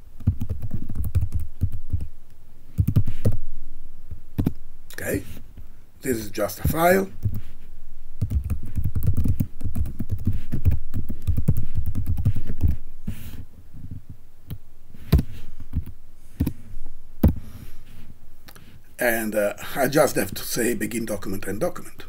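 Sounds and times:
typing on computer keyboard: 0.2 - 2.1, 8.2 - 12.8.

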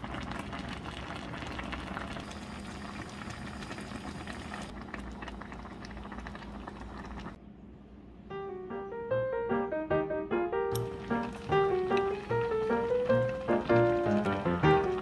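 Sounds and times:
stew boiling and bubbling: 0.0 - 7.4, 10.7 - 15.0.

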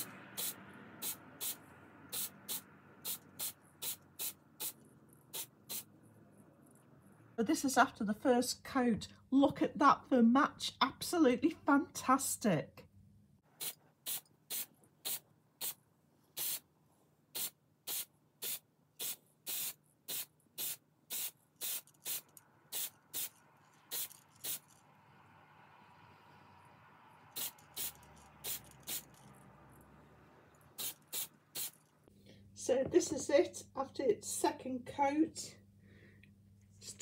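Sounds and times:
spray paint can hissing: 0.0 - 5.9, 13.6 - 15.8, 16.4 - 16.6, 17.4 - 24.8, 27.3 - 29.2, 30.8 - 31.9.

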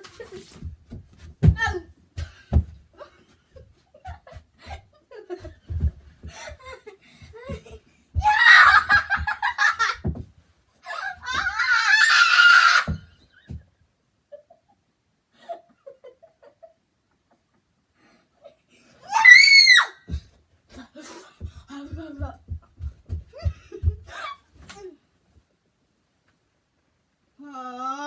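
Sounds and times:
dull thumps: 0.1 - 2.9, 5.3 - 10.4, 20.0 - 24.8
girl laughing: 3.0 - 10.1, 15.4 - 17.5, 21.8 - 25.0
girl squealing: 8.2 - 9.0, 10.9 - 13.0, 19.0 - 20.2.

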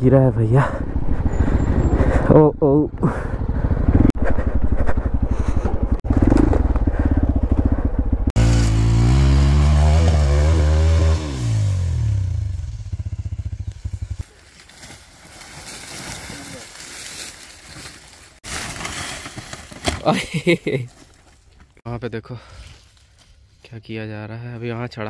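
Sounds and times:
motorcycle engine revving: 0.7 - 14.3.

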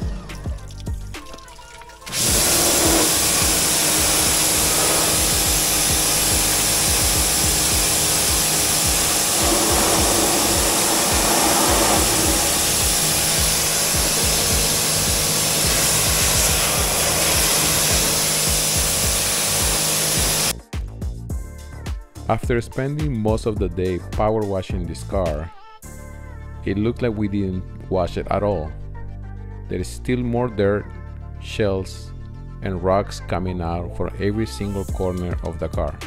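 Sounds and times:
pressure washer spray hissing: 2.1 - 20.5.

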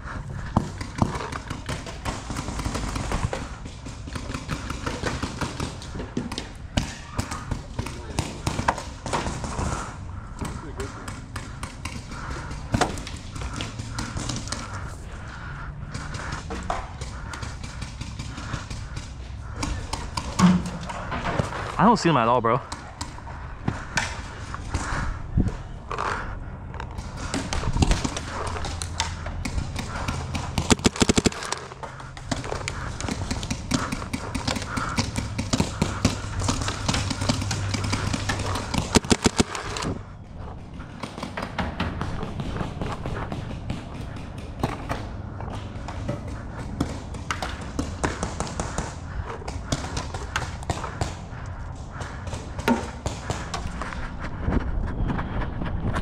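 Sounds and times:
paintball markers firing: 0.4 - 21.7, 26.9 - 40.0.

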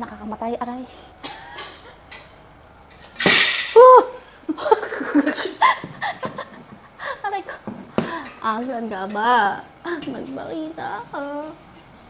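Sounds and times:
voices and laughter: 4.5 - 7.7.

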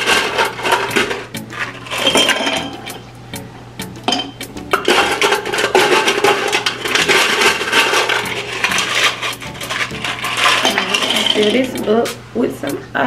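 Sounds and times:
ice cubes clinking into glass: 1.8 - 2.7, 4.8 - 11.7.

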